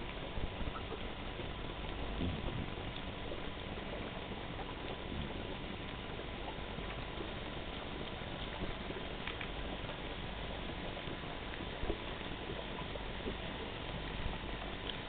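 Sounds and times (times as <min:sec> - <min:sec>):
crackling hiss: 0:00.0 - 0:15.0
faint clicks: 0:07.7 - 0:09.9, 0:13.2 - 0:15.0.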